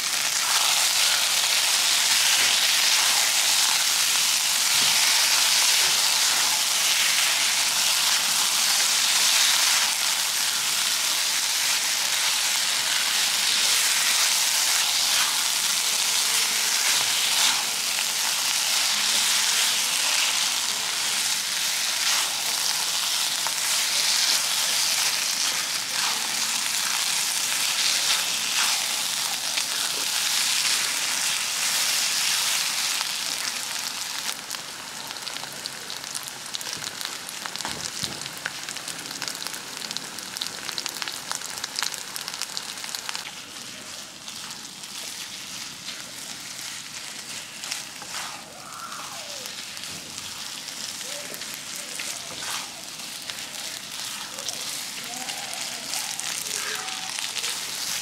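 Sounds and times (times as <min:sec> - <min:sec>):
paste sizzling in oil: 0:00.0 - 0:35.3, 0:39.4 - 0:58.0
spatula stirring in a wok: 0:00.3 - 0:33.8, 0:43.6 - 0:58.0.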